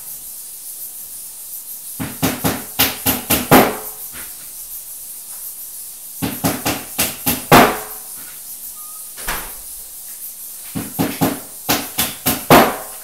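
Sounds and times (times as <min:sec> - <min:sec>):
knocks of cabinet parts: 0:02.0 - 0:04.3, 0:06.2 - 0:08.0, 0:09.2 - 0:09.7, 0:10.7 - 0:13.0.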